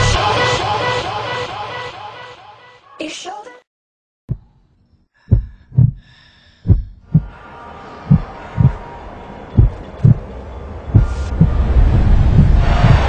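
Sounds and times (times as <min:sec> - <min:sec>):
heartbeat double thumps: 0:04.3 - 0:04.5, 0:05.3 - 0:07.4, 0:08.1 - 0:08.8, 0:09.6 - 0:10.2, 0:10.9 - 0:13.0.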